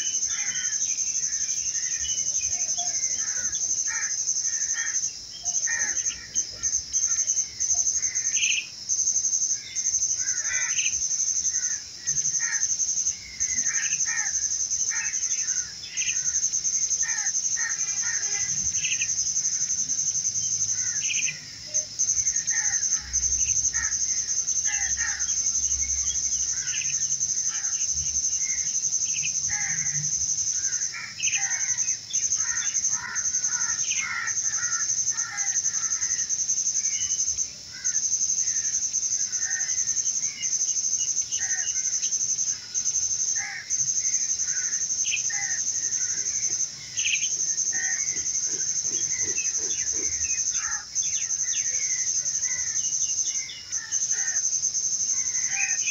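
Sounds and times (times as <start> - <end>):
high insect trill: 0.0 - 55.9
birds chirping: 44.0 - 54.4.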